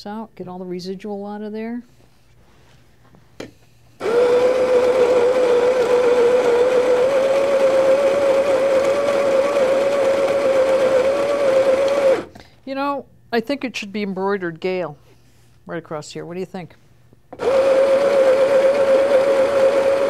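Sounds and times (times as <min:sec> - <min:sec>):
coffee grinder motor whine: 0:04.0 - 0:12.3, 0:17.4 - 0:20.0.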